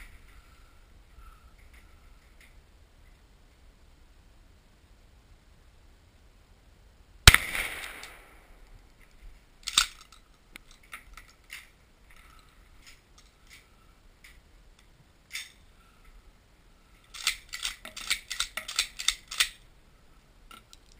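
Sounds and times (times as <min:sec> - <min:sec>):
shotgun shot: 0:07.3 - 0:08.6
shotgun pump clacking: 0:17.1 - 0:19.6.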